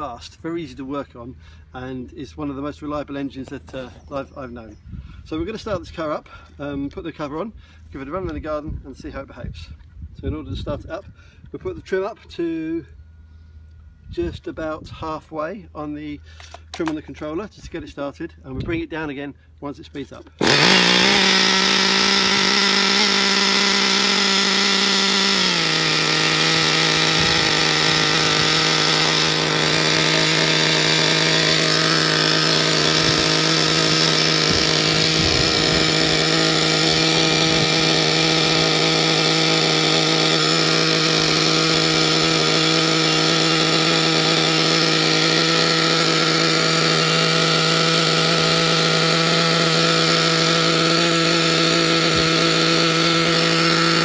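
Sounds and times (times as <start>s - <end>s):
nitro engine fast idle: 20.4s - 54.0s.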